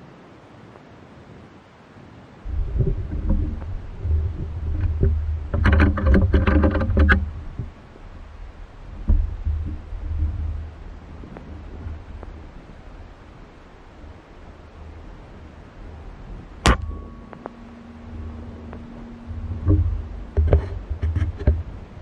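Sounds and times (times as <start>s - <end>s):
wind buffeting microphone: 2.4s - 22.0s
pitched buzzing: 2.5s - 22.0s
sharp thump: 16.6s - 21.6s.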